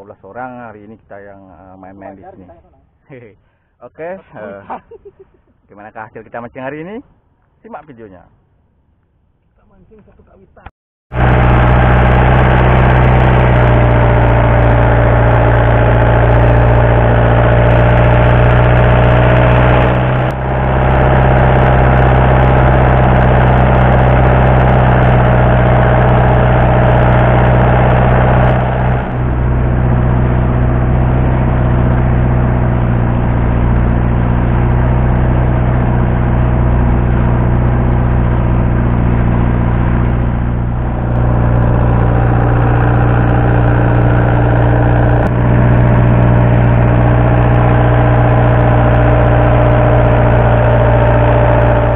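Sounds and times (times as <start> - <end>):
boat engine drone: 11.1 - 51.9
boat wake washing: 11.1 - 51.9.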